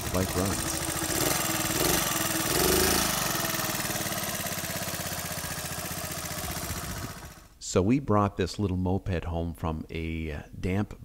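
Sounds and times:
moped engine idling: 0.0 - 7.6.

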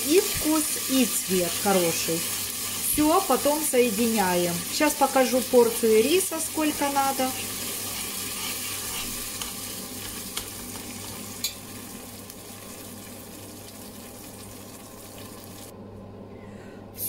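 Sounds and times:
paste sizzling in hot oil: 0.0 - 15.7.

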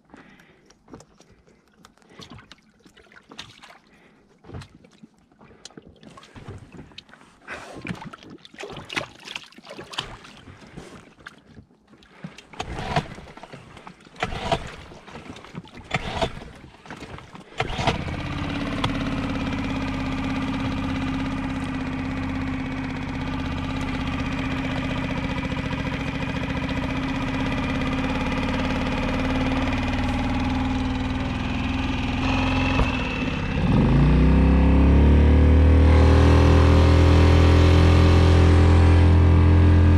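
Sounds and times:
outboard motor knocking and rattling: 11.9 - 39.9
outboard motor idling and revving: 12.0 - 39.9.

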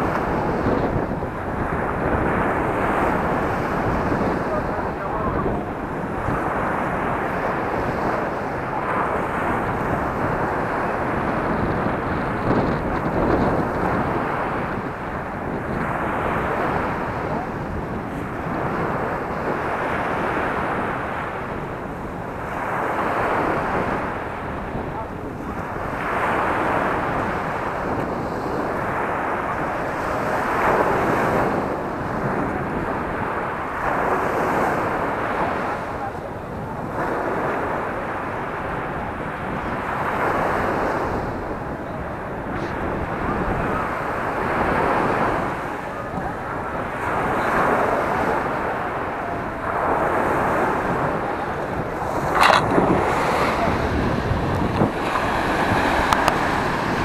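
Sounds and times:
surf waves breaking: 0.0 - 57.0
wind on microphone: 0.0 - 57.0
surf breaking on pebble beach: 46.8 - 57.0.

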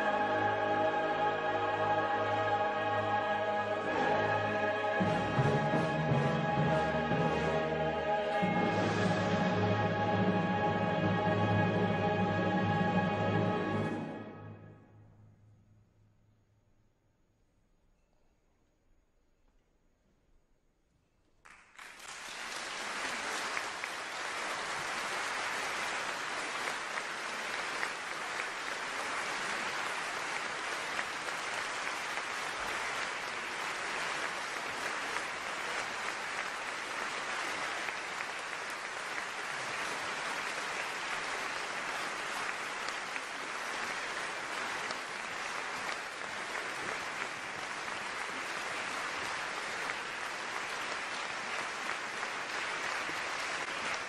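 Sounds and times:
audience applauding: 21.4 - 54.0.

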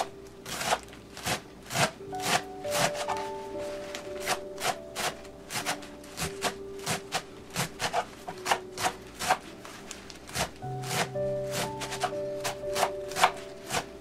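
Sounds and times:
knife chopping on wooden board: 4.2 - 9.4, 10.3 - 13.9.

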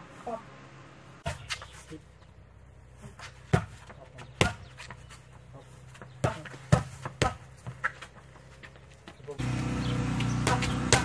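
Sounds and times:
boxing gloves slapping mitts: 10.5 - 11.0.

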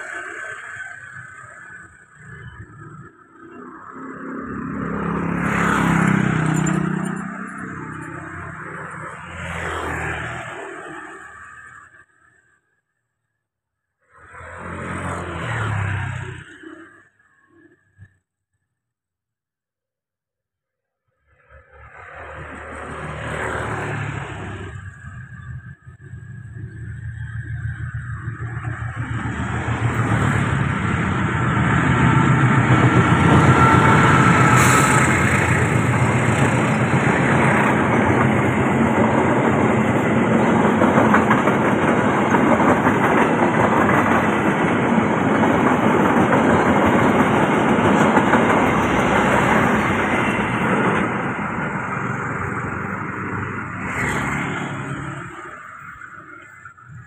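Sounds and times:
diesel locomotive passing: 0.0 - 12.6, 14.1 - 18.1, 21.2 - 57.0
train coaches clattering over rails: 6.0 - 9.2, 27.2 - 53.4.

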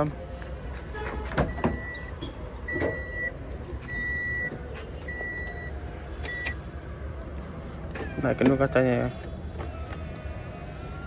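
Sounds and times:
vehicle warning beeper: 1.4 - 6.6.

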